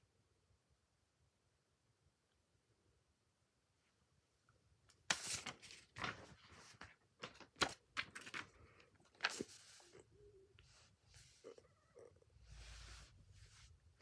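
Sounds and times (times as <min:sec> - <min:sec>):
paper rustling and crinkling: 0:05.0 - 0:10.1.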